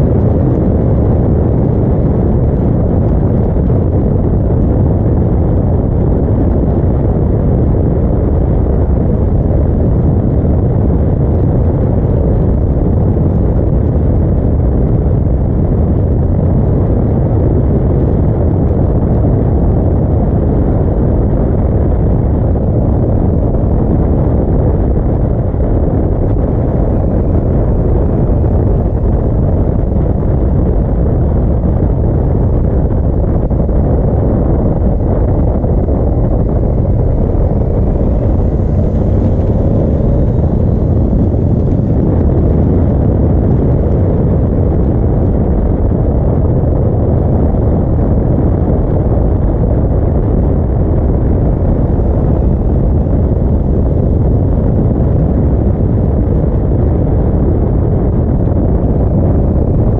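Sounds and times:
wind rushing over microphone: 0:00.0 - 0:59.9
motorcycle engine cruising: 0:25.4 - 0:44.1.

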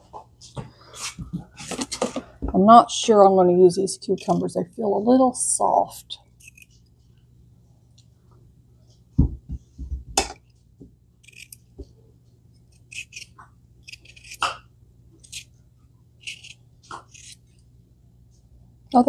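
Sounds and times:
dull knocks and thuds: 0:09.2 - 0:10.9
knife peeling cucumber: 0:12.7 - 0:14.6, 0:15.2 - 0:15.5, 0:16.2 - 0:17.5.

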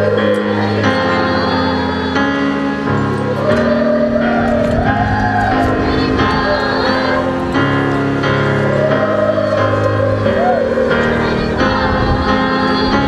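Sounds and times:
children's chorus singing: 0:00.0 - 0:13.0
instrumental accompaniment chords: 0:00.0 - 0:13.0.

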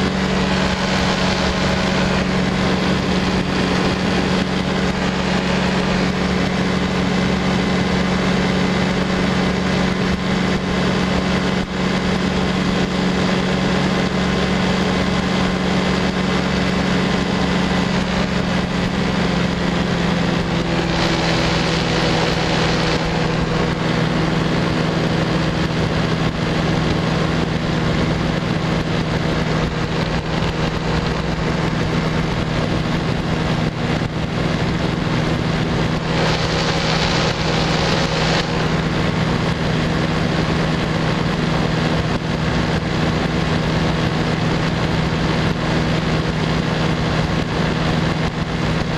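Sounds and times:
light aircraft engine: 0:00.0 - 0:48.9
wind rush on microphone: 0:00.0 - 0:48.9.

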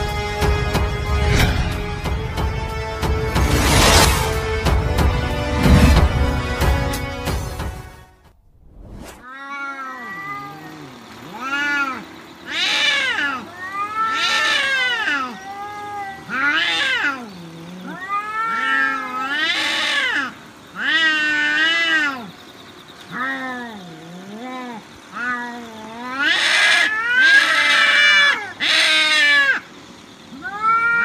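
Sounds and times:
music: 0:00.0 - 0:08.3
cats yowling: 0:09.2 - 0:31.0.

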